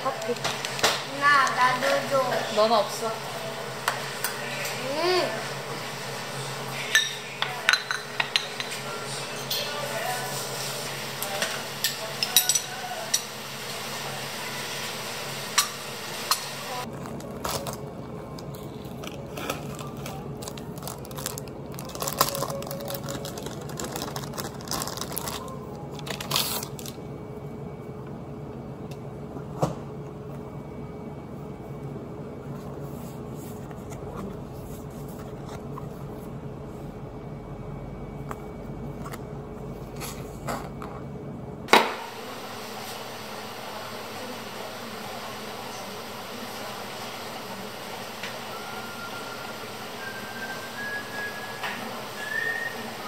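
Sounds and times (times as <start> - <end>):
steady low hum: 0.0 - 53.0
plastic wrapping crinkling: 16.9 - 27.0.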